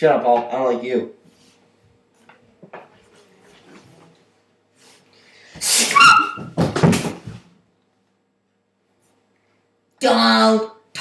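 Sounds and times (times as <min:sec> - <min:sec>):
short high yelp: 0:05.6 - 0:06.5.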